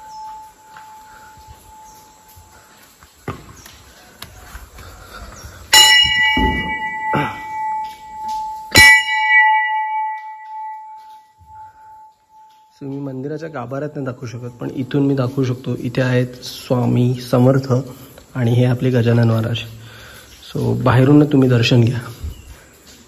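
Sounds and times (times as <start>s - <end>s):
temple bell ringing: 0.0s - 2.8s, 5.7s - 15.8s
knock: 6.3s - 7.3s.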